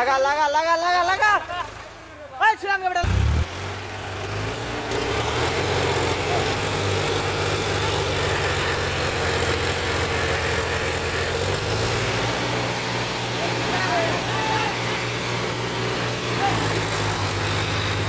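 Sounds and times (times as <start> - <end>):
tractor diesel engine running: 3.0 - 18.0.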